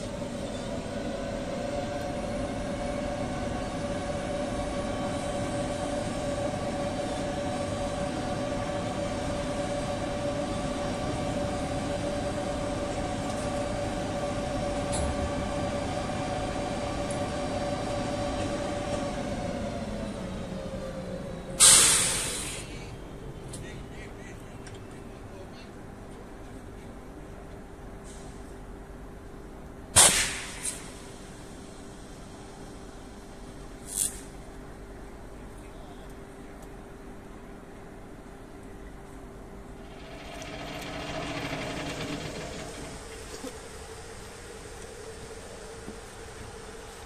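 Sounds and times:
electric locomotive whining: 0.0s - 23.6s, 38.5s - 47.0s.

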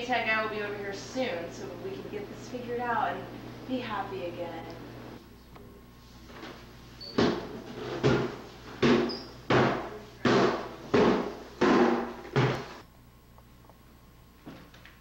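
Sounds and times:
heavy footsteps on stairs: 7.2s - 12.8s.

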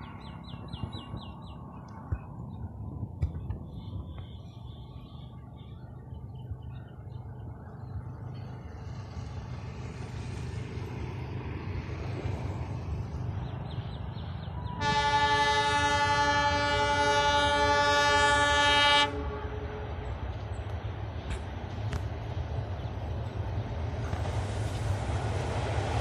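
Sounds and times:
diesel locomotive rumble: 0.0s - 26.0s
train horn blast: 14.6s - 20.2s.

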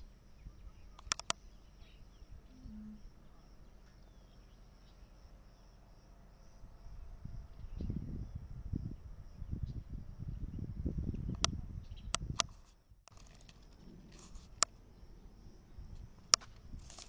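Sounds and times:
insects chirping: 0.0s - 17.0s
low rumbling on microphone: 2.1s - 3.8s, 6.5s - 12.4s.

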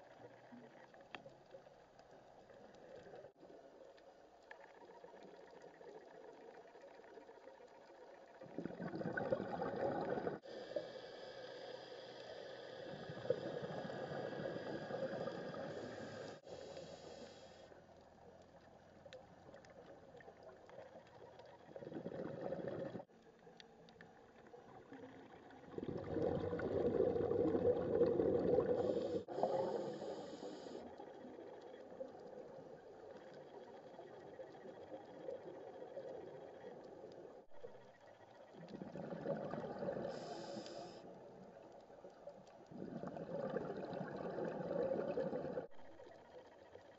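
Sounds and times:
underwater exhaled bubbles rumbling: 7.8s - 10.4s, 12.8s - 16.8s, 19.2s - 23.2s, 24.1s - 45.8s
faint hiss: 10.4s - 21.0s, 28.5s - 36.3s, 38.9s - 42.6s.

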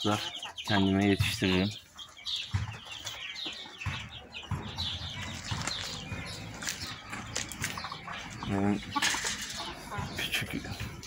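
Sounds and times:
chickens chirping: 0.0s - 11.0s
knocks and rustling: 2.3s - 11.0s.

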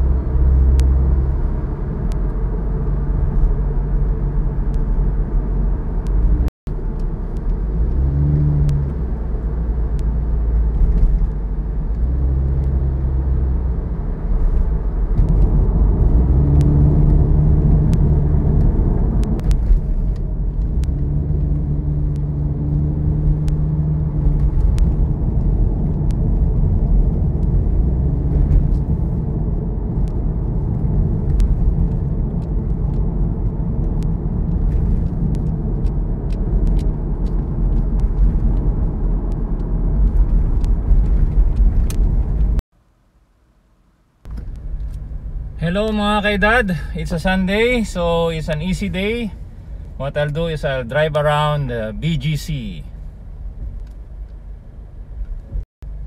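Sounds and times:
tyre and road rumble: 0.0s - 42.6s, 44.2s - 56.0s
car engine humming: 0.0s - 56.0s.

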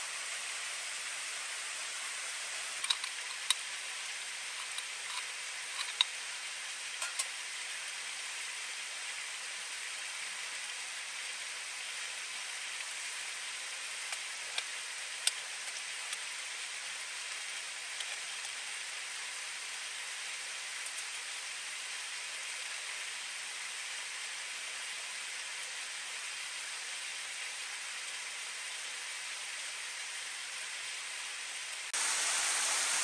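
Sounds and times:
flowing river water: 0.0s - 25.0s.

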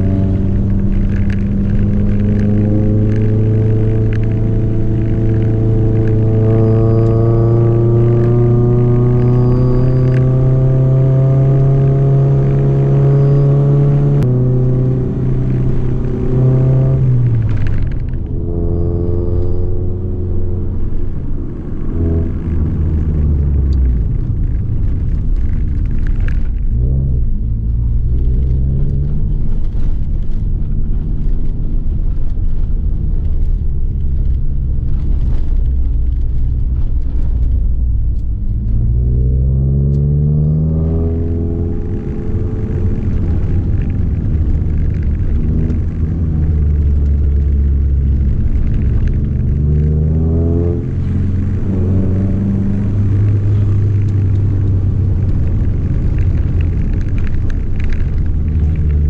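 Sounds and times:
car engine from inside cabin: 0.0s - 59.0s.

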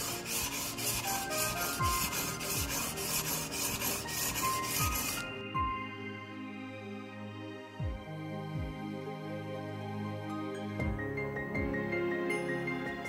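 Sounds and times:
knife scraping on wet whetstone: 0.0s - 5.3s.

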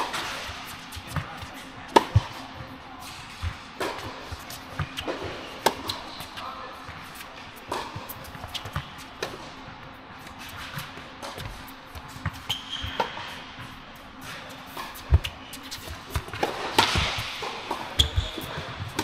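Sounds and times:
racket hitting tennis ball: 0.0s - 2.4s, 3.1s - 6.3s, 7.1s - 9.5s, 14.2s - 19.0s
sneaker squeak: 12.2s - 13.4s, 17.8s - 19.0s.

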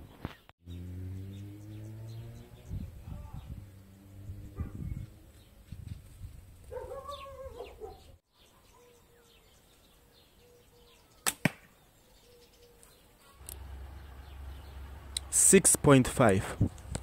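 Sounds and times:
bow string snap: 11.2s - 11.7s
sharp crack: 11.2s - 11.7s.

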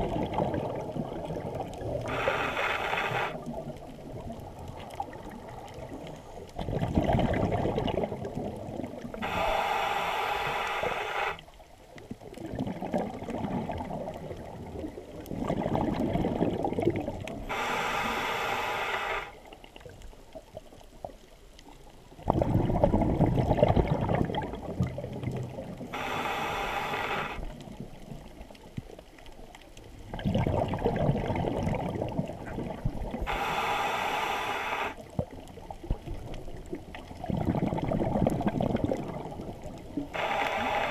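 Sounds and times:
exhaled bubbles rumbling: 0.0s - 17.8s, 19.4s - 33.8s, 35.0s - 40.9s
regulator hissing inhale: 2.0s - 3.5s, 9.1s - 11.4s, 17.4s - 19.4s, 25.9s - 27.5s, 33.2s - 35.0s, 40.1s - 40.9s.

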